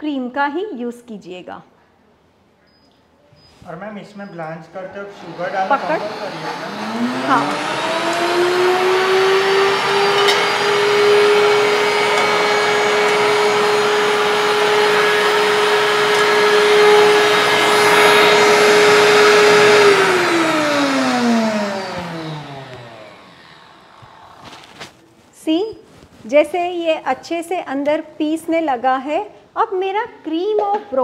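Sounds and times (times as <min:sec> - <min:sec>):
blender motor running: 0:04.9 - 0:25.0.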